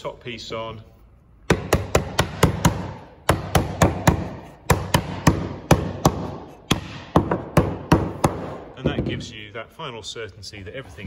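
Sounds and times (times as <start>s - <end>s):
rubber mallet knocking fibreboard: 1.5s - 9.2s.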